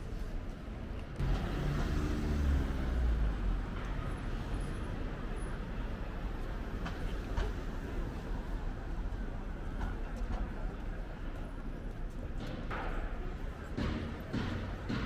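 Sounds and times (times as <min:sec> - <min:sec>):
traffic noise: 0:00.0 - 0:15.0
vehicle engine passing: 0:01.2 - 0:03.8.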